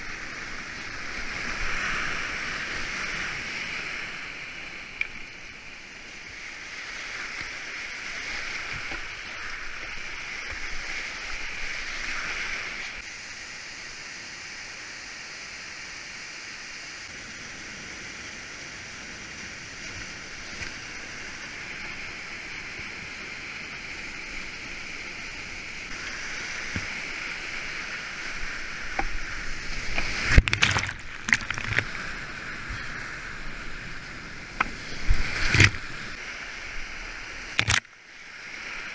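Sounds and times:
rushing whitewater: 0.0 - 38.9
paddle splashing water: 6.2 - 13.0, 25.9 - 37.9.

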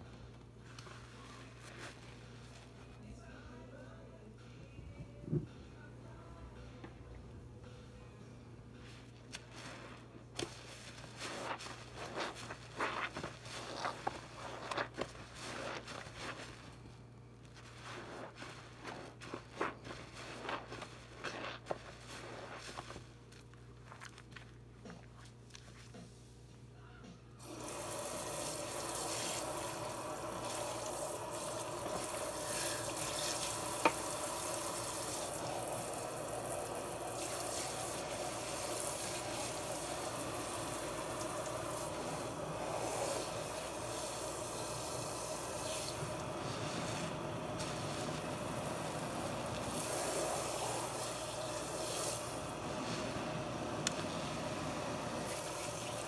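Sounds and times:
tap water running into sink: 27.4 - 39.7.

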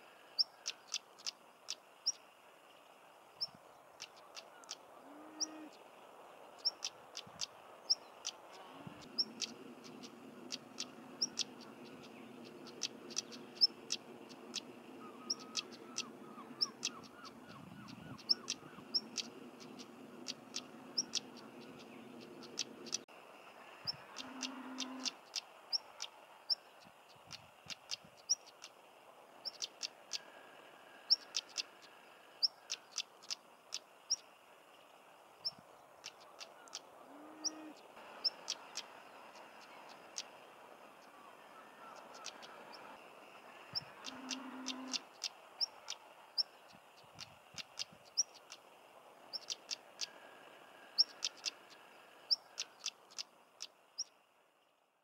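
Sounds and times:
bird whistling and clicking calls: 12.6 - 23.0, 41.8 - 42.9, 43.7 - 46.5, 49.3 - 50.1.

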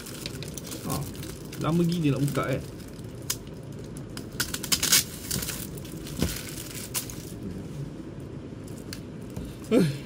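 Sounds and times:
plastic wrapping crinkling: 0.0 - 7.4.

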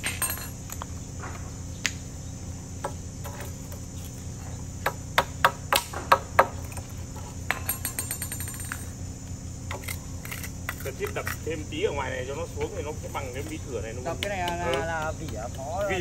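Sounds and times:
hammer striking chisel on concrete: 14.1 - 16.0.

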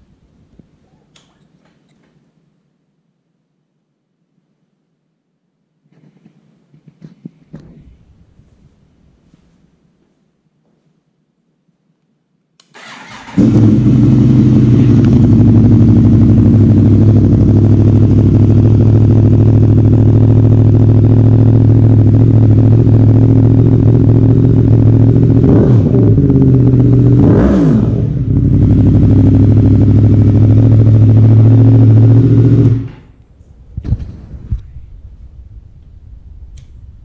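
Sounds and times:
engine revving: 12.8 - 33.1
motorcycle engine idling: 13.0 - 25.4, 28.1 - 33.0.

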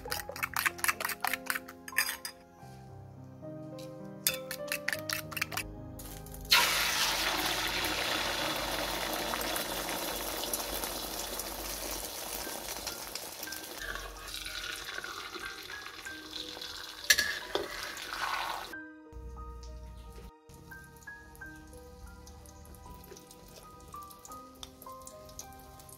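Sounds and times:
metal spatula clinking on wok: 0.1 - 2.4, 4.3 - 5.5, 17.1 - 17.7
egg sizzling in hot oil: 6.0 - 18.8.

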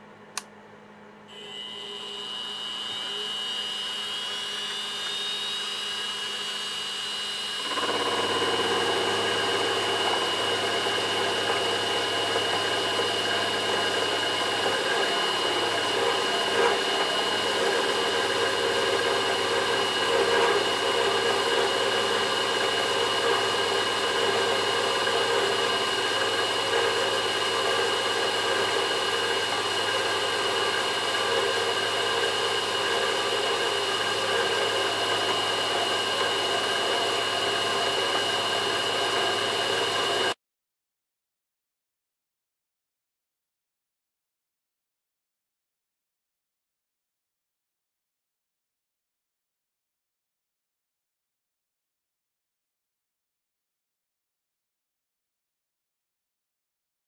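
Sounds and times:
end mill cutting steel: 1.3 - 40.4
milling spindle high whine: 1.3 - 40.4.

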